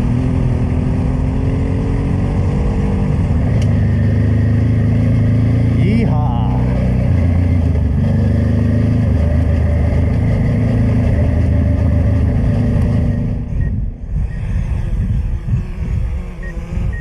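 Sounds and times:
motorcycle engine running: 0.0s - 14.4s
wind buffeting microphone: 8.8s - 17.0s.

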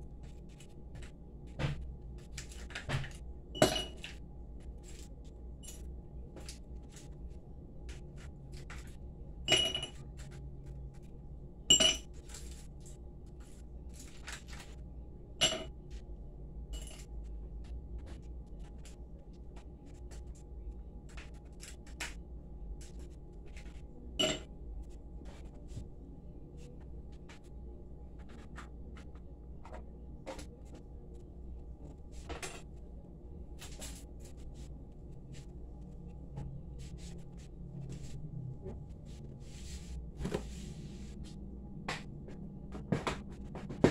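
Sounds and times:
steady low hum: 0.0s - 43.9s
kitchenware clinking on counter: 3.6s - 4.2s, 9.5s - 10.0s, 11.7s - 12.2s, 15.4s - 15.7s, 24.2s - 24.5s.

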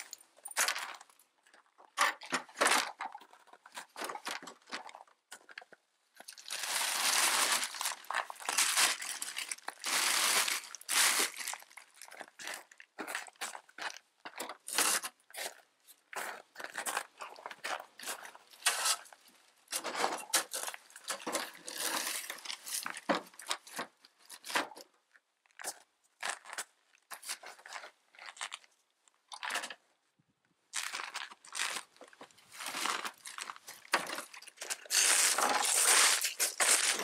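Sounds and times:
shovel scraping snow and ice: 34.8s - 37.0s.

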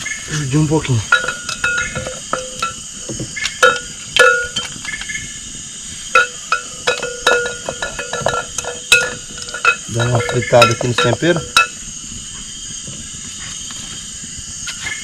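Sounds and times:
high insect drone: 0.0s - 15.0s
metal utensil clinking on pot: 1.1s - 2.8s, 3.6s - 4.8s, 6.2s - 11.8s.

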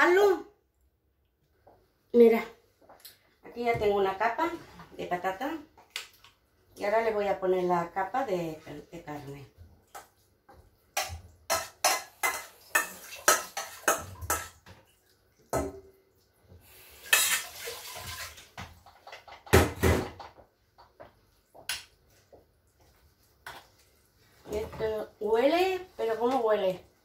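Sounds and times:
spoon scraping a dish: 17.1s - 17.6s.

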